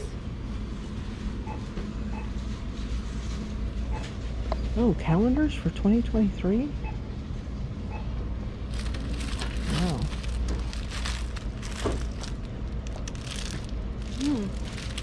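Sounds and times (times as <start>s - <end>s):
steady low hum: 0.0s - 15.0s
crinkling and rustling: 8.7s - 15.0s.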